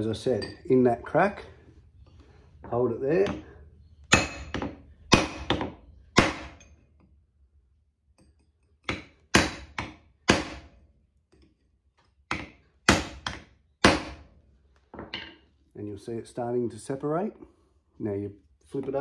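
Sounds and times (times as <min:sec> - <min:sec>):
hammer striking a chisel: 0:03.2 - 0:03.5, 0:04.1 - 0:06.8, 0:08.2 - 0:10.8, 0:12.3 - 0:14.3.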